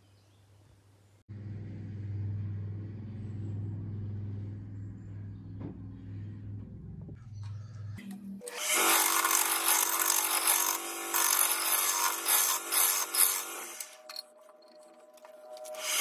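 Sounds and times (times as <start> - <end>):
gouge cutting wood: 8.6 - 13.9.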